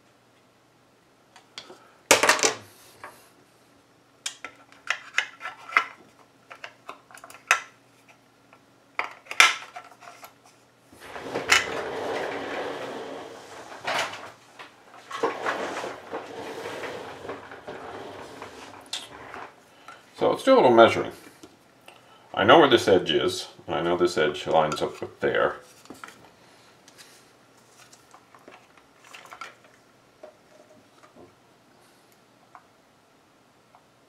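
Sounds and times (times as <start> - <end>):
plastic parts rubbing and scraping: 9.2 - 20.0, 27.0 - 29.8.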